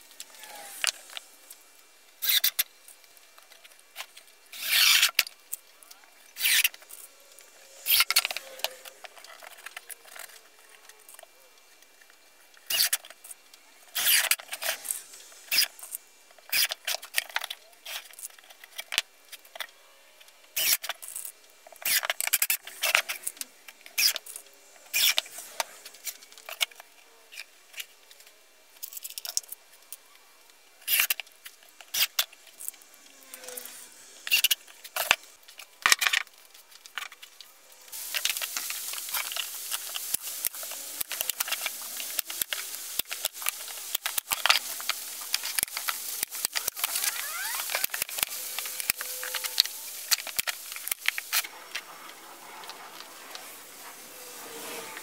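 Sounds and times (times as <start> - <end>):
steady rustling hiss: 0.0 - 55.0
screws clicking and rattling: 2.2 - 2.7, 3.4 - 5.7, 6.4 - 11.3, 12.6 - 19.7, 20.6 - 27.9, 30.8 - 51.9.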